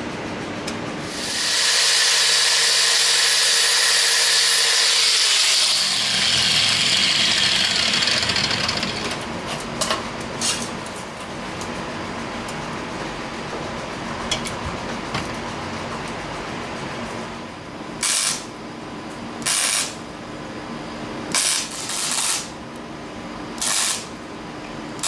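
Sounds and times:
power tool running with hiss: 1.0 - 9.2, 18.0 - 18.5, 19.5 - 20.0, 21.3 - 22.5, 23.6 - 24.1.

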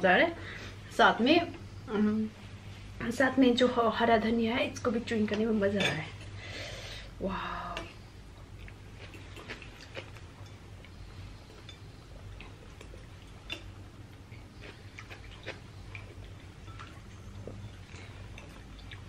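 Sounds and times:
steady low hum: 0.0 - 19.0
chewing and sipping sounds: 8.4 - 19.0.

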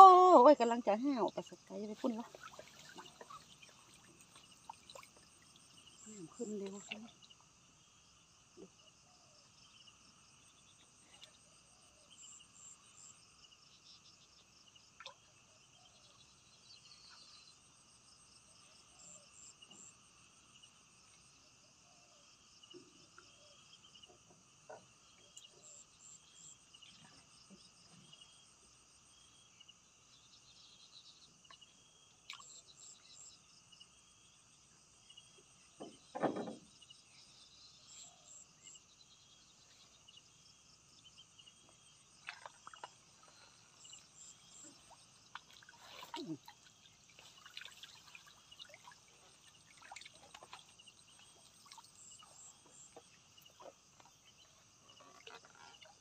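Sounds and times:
crickets trilling: 0.0 - 14.9, 35.1 - 56.0.

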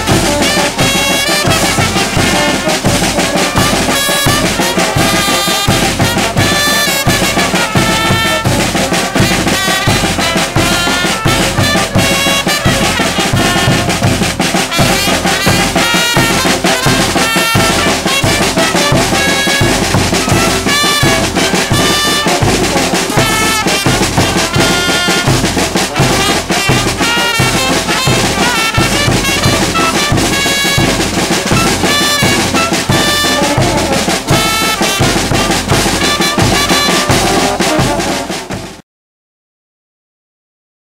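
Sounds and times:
bass drum beat: 0.0 - 38.6
brass horns: 0.0 - 38.8
snare drum: 0.0 - 38.8
trumpets: 0.0 - 38.8.

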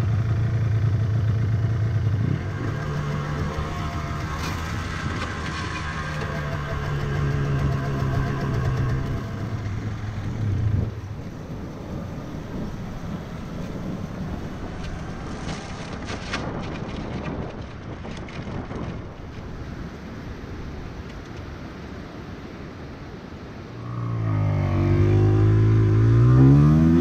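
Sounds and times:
two-stroke motorcycle engine running: 0.0 - 11.1
motorcycle rolling: 0.0 - 21.2.

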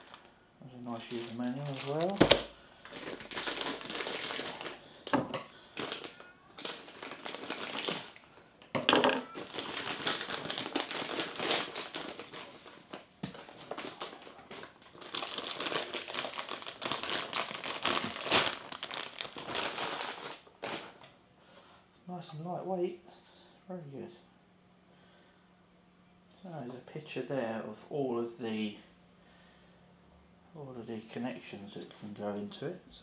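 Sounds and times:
plastic bag crinkling: 0.0 - 8.4, 9.0 - 21.1.

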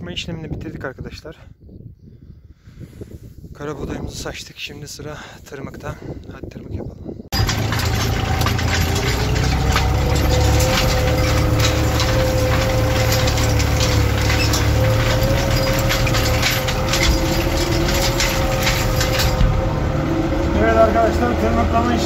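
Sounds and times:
rapid irregular rattling and clicking: 7.3 - 19.6
tractor diesel engine under load: 7.3 - 22.0
constant whine: 7.4 - 22.0.

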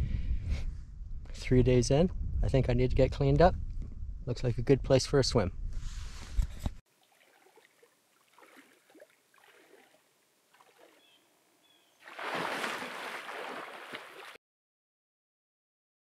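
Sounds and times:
water churning: 6.9 - 11.2, 12.0 - 14.4
water sloshing around legs: 6.9 - 11.2, 12.0 - 14.4
loud splash: 7.0 - 10.0, 12.0 - 14.4.

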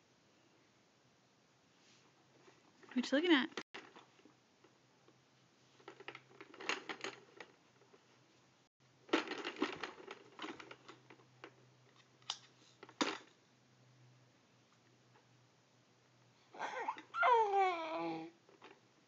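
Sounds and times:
plastic toys clattering: 5.8 - 8.0, 9.1 - 13.4.

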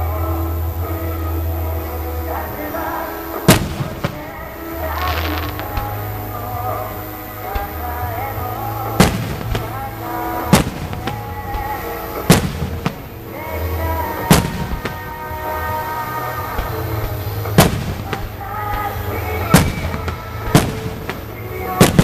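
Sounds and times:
background music: 0.0 - 22.0
firework shells bursting: 2.2 - 13.1.

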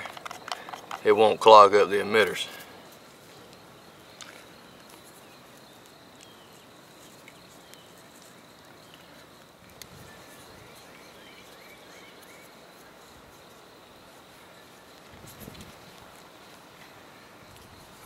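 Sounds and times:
high insect buzz: 0.0 - 18.0
bird chirps: 3.3 - 13.2.

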